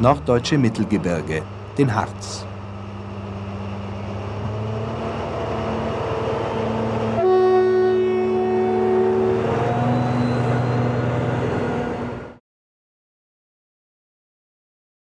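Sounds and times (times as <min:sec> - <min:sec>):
train running noise: 0:00.0 - 0:12.4
locomotive whistle: 0:03.7 - 0:12.4.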